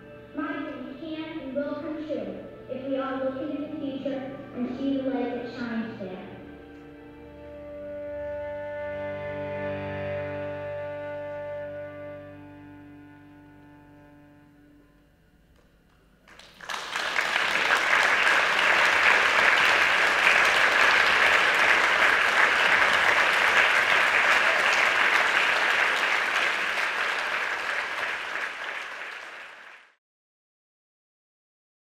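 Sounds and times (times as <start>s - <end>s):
music: 0.0s - 29.8s
audience applause: 16.3s - 30.0s.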